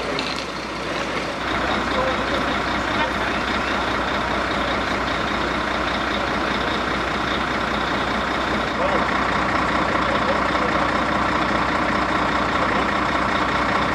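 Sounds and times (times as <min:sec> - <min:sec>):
fire engine running: 0:00.0 - 0:13.9.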